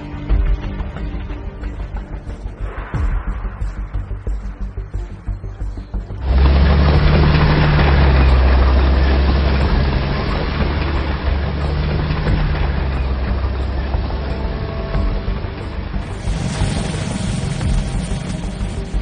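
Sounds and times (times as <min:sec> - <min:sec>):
heavy engine rumble: 0:06.2 - 0:19.0.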